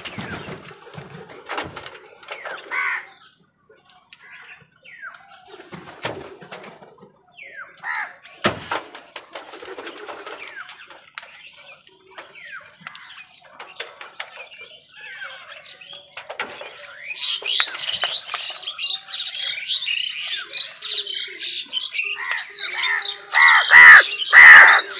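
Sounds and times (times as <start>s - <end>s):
crows calling: 2.5s - 3.2s, 7.8s - 8.2s, 22.2s - 24.9s
beaks pecking grain: 7.9s - 21.0s, 23.3s - 24.9s.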